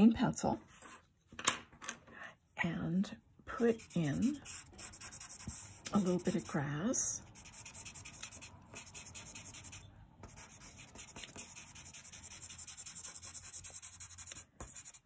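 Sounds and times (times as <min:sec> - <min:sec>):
pencil scratching on paper: 0:03.6 - 0:06.6, 0:07.3 - 0:15.0.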